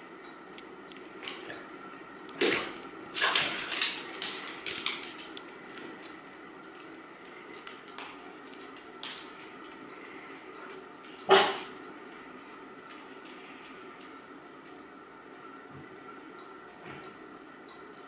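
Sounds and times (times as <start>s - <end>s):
dog claws clicking on wood floor: 2.3s - 9.8s.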